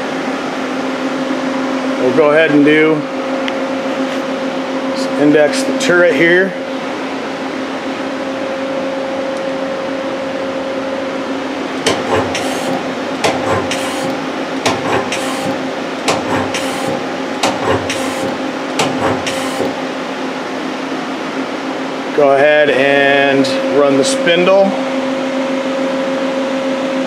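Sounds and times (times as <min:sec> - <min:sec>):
machine humming: 0:00.0 - 0:22.3
lathe tool turret clunks: 0:11.8 - 0:19.8.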